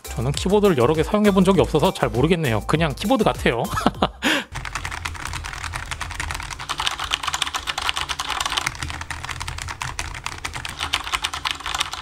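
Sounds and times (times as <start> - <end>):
fast mechanical keyboard typing: 4.5 - 12.0.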